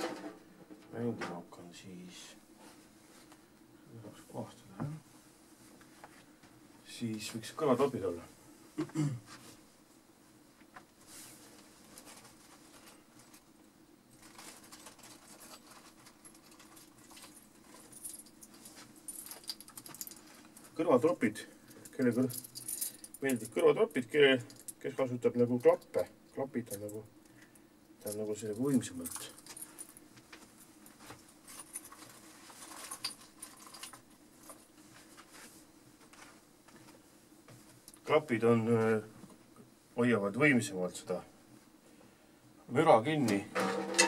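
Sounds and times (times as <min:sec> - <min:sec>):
low room hum: 0:00.0 - 0:44.0
small objects rustling and clicking: 0:14.1 - 0:20.8, 0:28.7 - 0:35.3.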